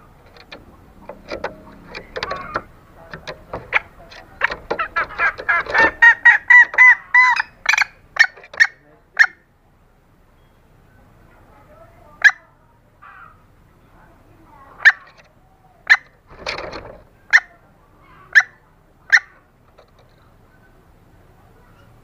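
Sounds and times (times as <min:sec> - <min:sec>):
hen clucking calls: 0:00.0 - 0:09.5, 0:12.2 - 0:13.6, 0:14.6 - 0:20.9.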